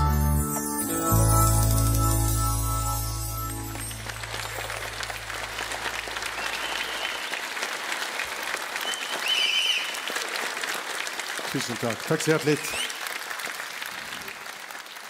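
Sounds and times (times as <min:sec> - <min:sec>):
audience applauding: 0:01.5 - 0:15.0
high wavering whistles: 0:06.4 - 0:07.4, 0:08.8 - 0:10.0.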